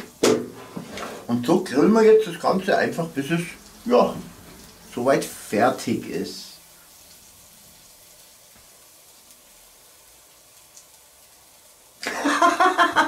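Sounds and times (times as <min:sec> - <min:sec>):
sausages sizzling on a grill: 0:00.0 - 0:13.0
man speaking: 0:01.3 - 0:04.3, 0:04.9 - 0:06.6.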